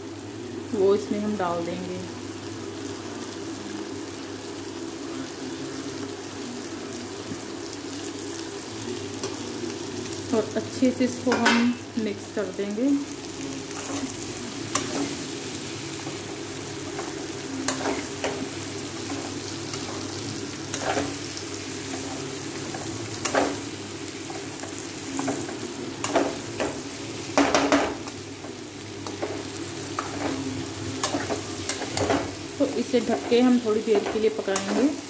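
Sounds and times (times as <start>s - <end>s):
food sizzling: 0.0s - 35.0s.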